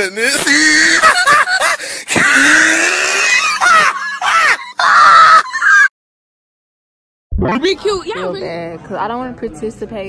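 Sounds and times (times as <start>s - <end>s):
teenager shrieking and yelling: 0.1s - 5.9s.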